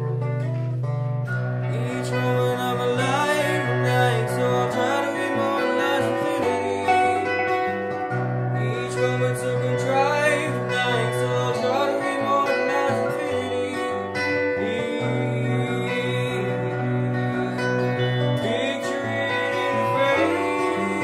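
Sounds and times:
guitar: 0:00.0 - 0:21.0
person singing: 0:01.6 - 0:21.0.

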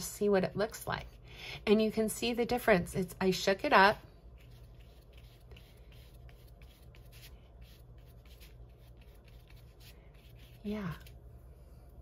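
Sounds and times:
low steady hum: 0:00.0 - 0:12.0
paintbrush scratching on paper: 0:04.2 - 0:11.2.

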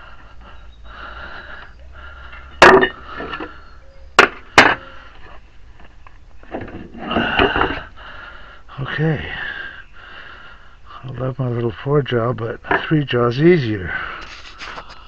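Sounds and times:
low steady hum: 0:00.0 - 0:14.2
soft scraping: 0:14.2 - 0:15.0.

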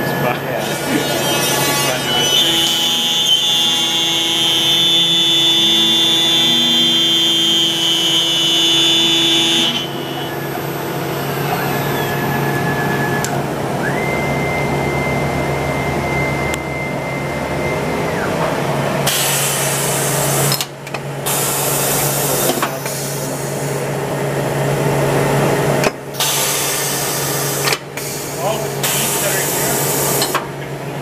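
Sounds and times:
high machine whine: 0:00.0 - 0:31.0
low machine hum: 0:00.0 - 0:31.0
compressed air hissing: 0:19.0 - 0:20.6, 0:26.2 - 0:30.2.

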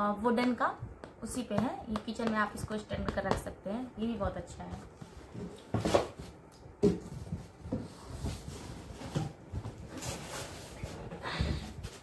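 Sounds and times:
cardboard scraping rustles: 0:07.0 - 0:12.0.

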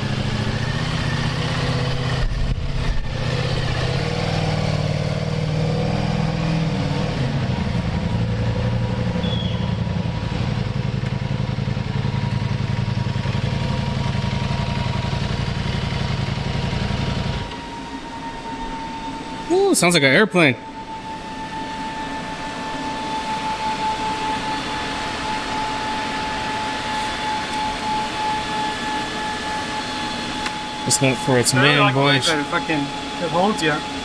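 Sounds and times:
motorcycle engine idling: 0:00.0 - 0:18.2
steady whine: 0:00.0 - 0:34.0.

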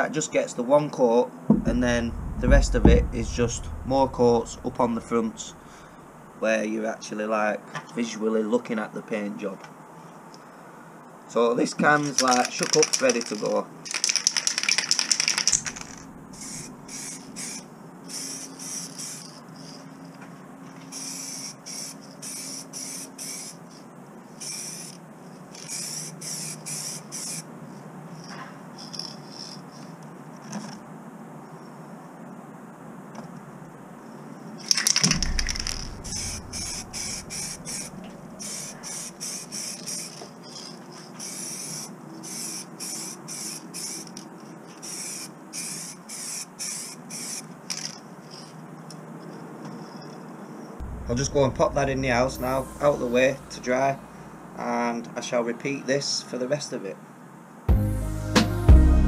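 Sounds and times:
spray paint can hissing: 0:12.0 - 0:19.8, 0:20.9 - 0:23.8, 0:24.4 - 0:27.5, 0:34.6 - 0:48.5.

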